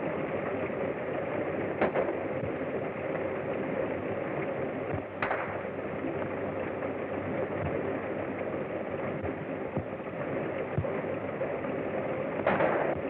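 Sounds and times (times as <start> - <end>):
film soundtrack hiss: 0.0 - 13.0
gunshots: 12.4 - 13.0.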